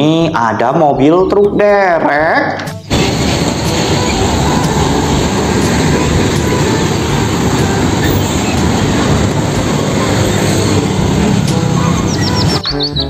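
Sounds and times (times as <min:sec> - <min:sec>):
road traffic rumble: 0:02.6 - 0:13.0.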